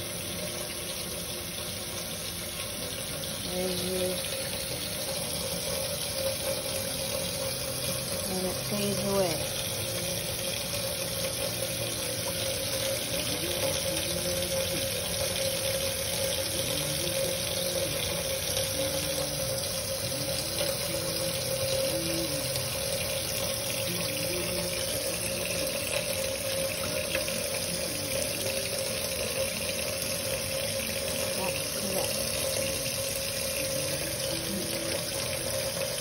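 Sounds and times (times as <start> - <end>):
tap running into metal sink: 9.6 - 34.2.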